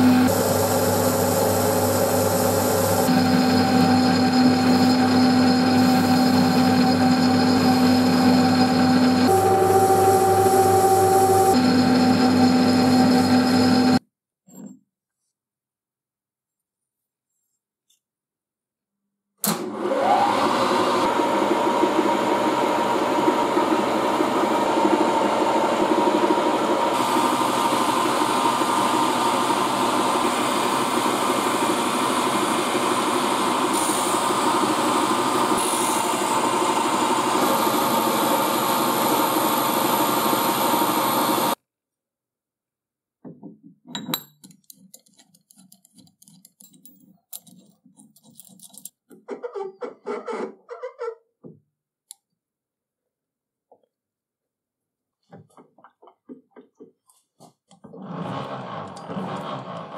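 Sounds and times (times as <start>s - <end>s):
milling machine cutting metal: 0.0s - 14.0s
metal parts clicking and tapping: 43.9s - 49.2s.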